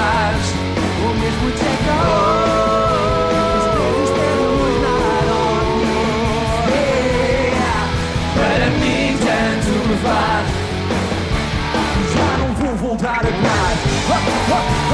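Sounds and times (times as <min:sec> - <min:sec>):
person singing long held yeah: 0:00.0 - 0:10.5
drums and cymbals: 0:00.0 - 0:14.9
guitar: 0:00.0 - 0:14.9.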